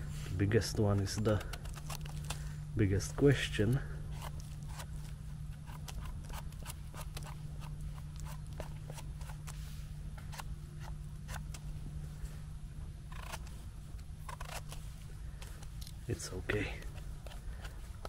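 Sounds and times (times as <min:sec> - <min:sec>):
low steady hum: 0:00.0 - 0:18.0
knife scraping mushroom stem: 0:03.1 - 0:11.6, 0:14.2 - 0:18.0.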